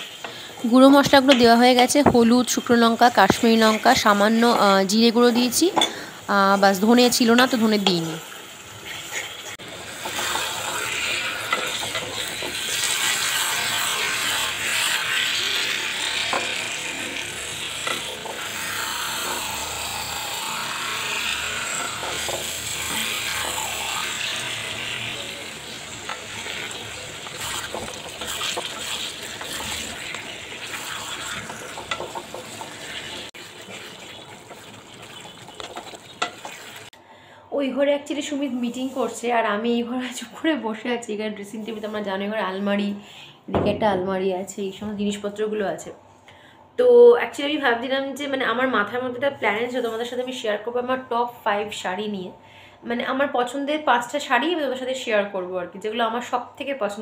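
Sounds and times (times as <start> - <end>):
meat sizzling in a pan: 0.0 - 1.3, 3.0 - 37.0
spatula scraping a pan: 8.8 - 36.9.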